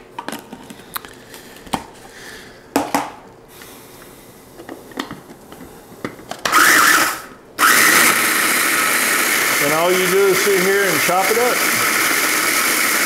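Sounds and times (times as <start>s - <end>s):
food chopper motor whirring: 6.5s - 13.0s.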